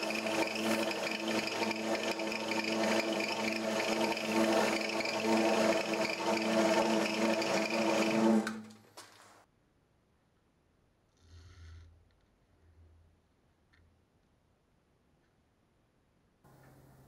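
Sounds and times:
drill bit boring into sugar: 0:00.0 - 0:08.7
drill press motor running: 0:00.0 - 0:08.8.

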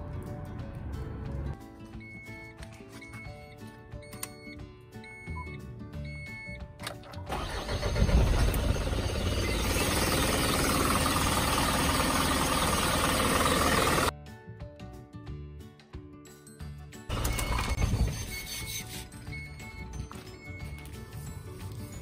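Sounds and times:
background music: 0:00.0 - 0:08.5, 0:14.0 - 0:22.0
truck engine cranking and running: 0:06.8 - 0:14.1, 0:17.1 - 0:18.4.

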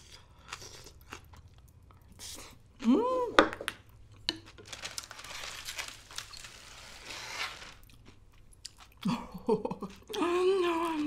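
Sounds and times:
chewing crunch: 0:00.0 - 0:02.3, 0:07.8 - 0:10.2
seaweed sheet crinkling: 0:04.4 - 0:08.2.

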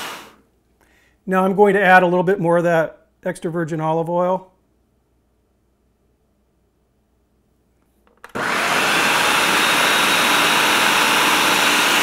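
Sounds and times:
food processor motor grinding: 0:00.0 - 0:00.4, 0:08.2 - 0:12.0.

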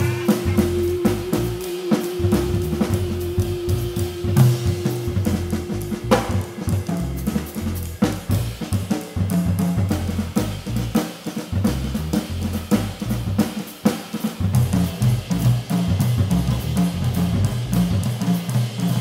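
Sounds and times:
cymbals ringing: 0:00.0 - 0:09.2
drum kit played with sticks: 0:00.0 - 0:19.0.

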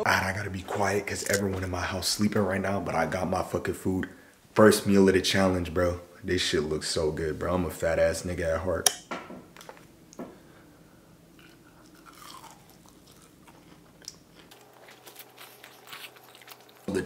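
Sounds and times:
person chewing and crunching: 0:11.4 - 0:17.0.

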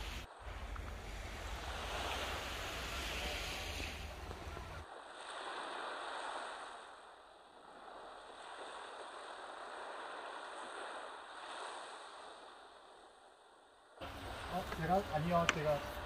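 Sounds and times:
sea waves washing on shore: 0:00.0 - 0:16.0.

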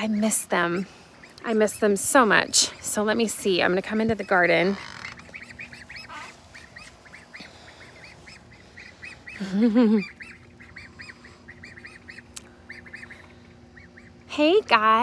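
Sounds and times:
ducklings peeping: 0:00.0 - 0:15.0.

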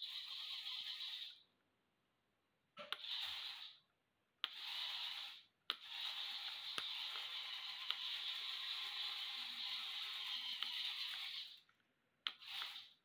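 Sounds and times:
walking robot motors whirring: 0:00.0 - 0:01.4, 0:02.9 - 0:03.8, 0:04.4 - 0:11.7, 0:12.3 - 0:13.0.

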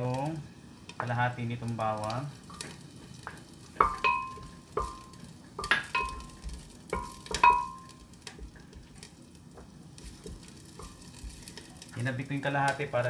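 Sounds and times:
food sizzling in oil: 0:00.0 - 0:13.0
wooden spoon knocking a pot: 0:03.3 - 0:08.9.

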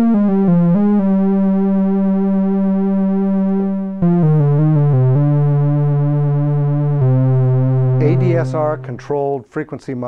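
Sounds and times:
analog synthesizer notes with vibrato: 0:00.0 - 0:09.2.

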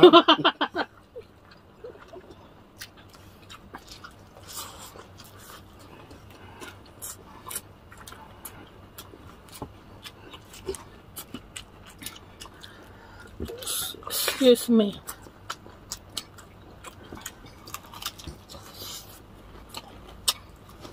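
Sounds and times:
chewing and mouth clicks: 0:01.0 - 0:14.1, 0:15.0 - 0:20.9
crunching fried chicken: 0:15.1 - 0:20.9.

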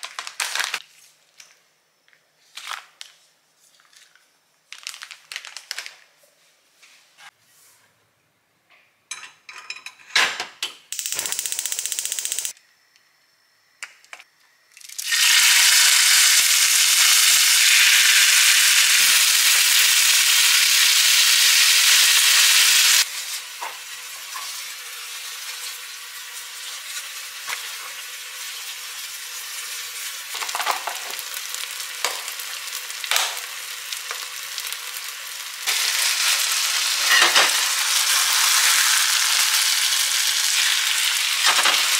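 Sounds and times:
beef sizzling in a skillet: 0:15.0 - 0:41.9.

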